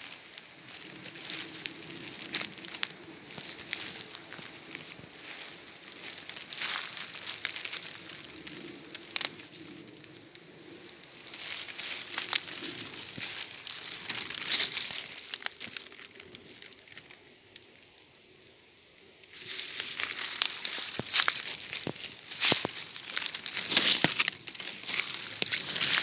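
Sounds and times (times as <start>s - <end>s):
footsteps through dry leaves: 0.0s - 10.0s, 11.0s - 16.8s, 19.3s - 26.0s
twigs snapping: 0.0s - 18.1s, 19.3s - 26.0s.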